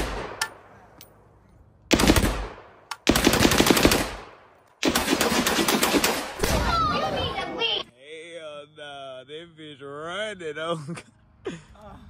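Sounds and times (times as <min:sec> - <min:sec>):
rapid-fire gunshots: 0:01.9 - 0:06.7.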